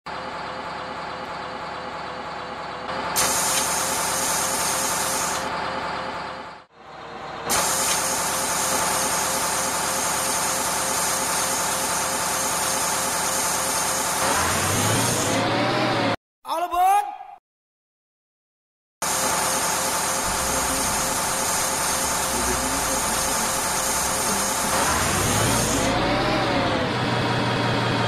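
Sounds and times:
bus engine running: 0.1 - 16.2, 19.0 - 28.0
loud high hiss: 20.2 - 25.9.

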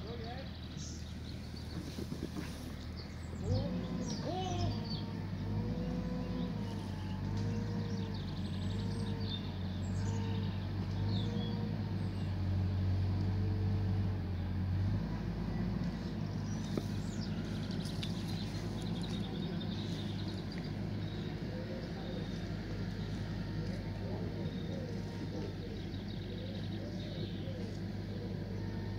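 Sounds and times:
vehicle engine idling: 0.0 - 28.9
bird chirps: 15.5 - 28.9.

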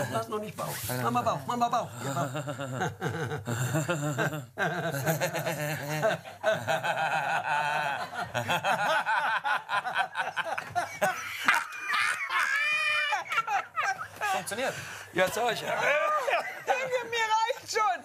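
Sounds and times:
people laughing heartily: 2.0 - 15.0, 15.6 - 17.1.

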